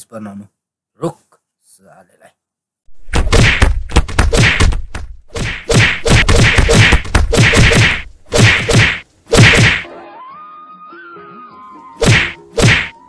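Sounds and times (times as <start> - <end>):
whacking blows and slaps: 2.9 - 9.9, 12.0 - 13.0.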